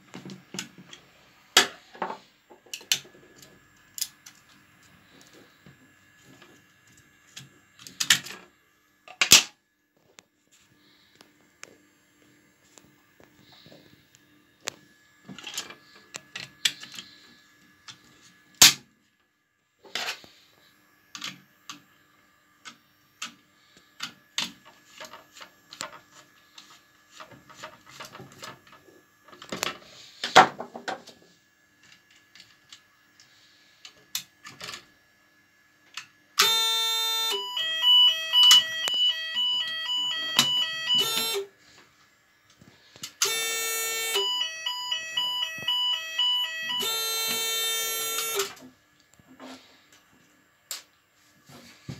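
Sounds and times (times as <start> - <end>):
fire alarm sounder alternating tones: 36.4 - 41.5, 43.2 - 48.6.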